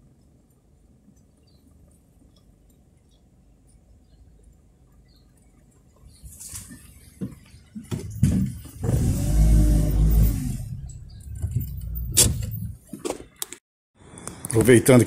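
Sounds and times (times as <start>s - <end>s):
car engine revving: 8.8s - 12.6s.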